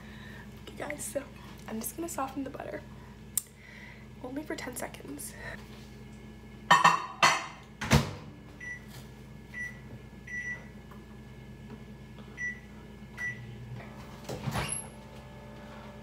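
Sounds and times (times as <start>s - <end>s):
microwave hum: 0.0s - 16.0s.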